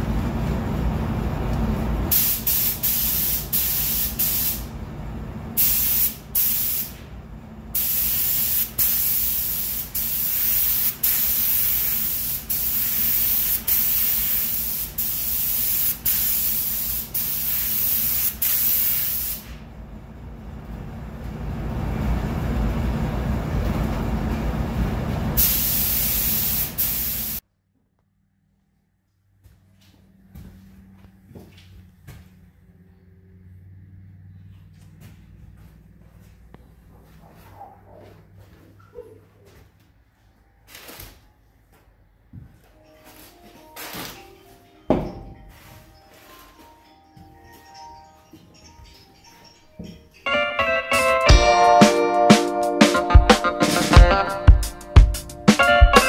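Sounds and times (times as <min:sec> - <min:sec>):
paint spray gun hissing: 0:02.1 - 0:04.7, 0:05.6 - 0:07.0, 0:07.8 - 0:19.5, 0:25.4 - 0:27.4.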